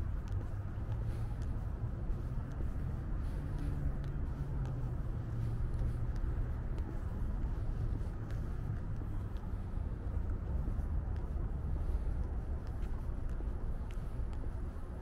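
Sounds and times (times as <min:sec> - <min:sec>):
city traffic rumble: 0:00.0 - 0:15.0.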